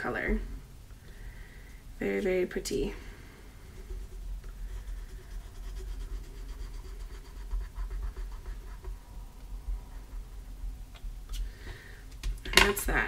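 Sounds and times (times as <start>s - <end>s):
steady low hum: 0.0s - 13.0s
pencil scratching on card: 3.7s - 9.0s.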